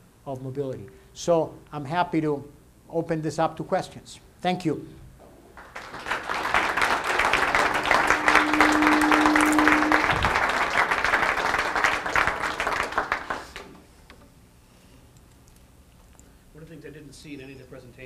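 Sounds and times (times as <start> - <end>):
audience applauding: 5.6 - 13.8.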